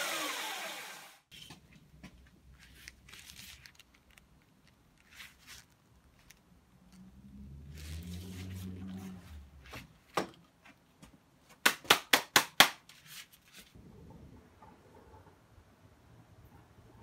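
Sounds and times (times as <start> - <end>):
belt sander motor humming: 0.0 - 1.2.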